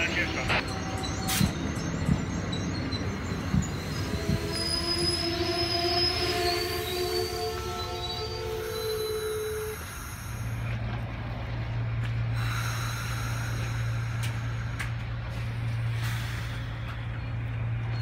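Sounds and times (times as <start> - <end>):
train wheel squeal: 0.0 - 10.8, 17.8 - 18.0
passenger cars rolling hum: 0.0 - 18.0.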